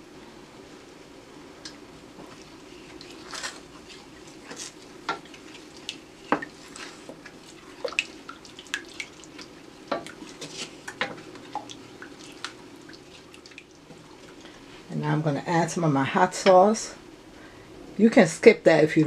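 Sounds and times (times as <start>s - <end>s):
steady low hum: 0.0s - 19.0s
wooden spoon stirring sauce: 2.2s - 14.4s.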